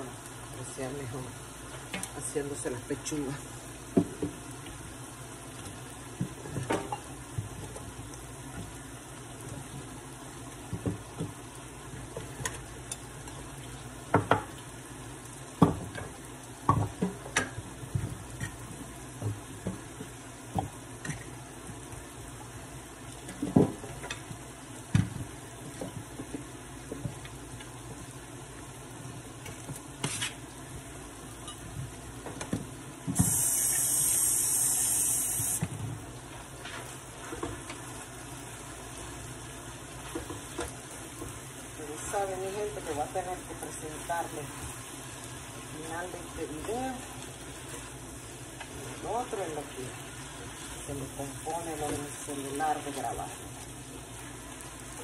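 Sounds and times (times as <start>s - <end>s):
food sizzling in a skillet: 0.0s - 23.1s, 33.0s - 55.0s
loud high hiss: 33.2s - 35.6s.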